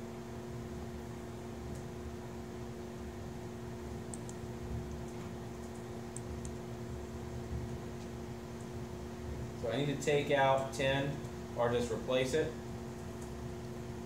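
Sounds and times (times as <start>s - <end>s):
room hum with steady tones: 0.0s - 14.0s
laptop keystrokes clicking: 4.1s - 4.4s.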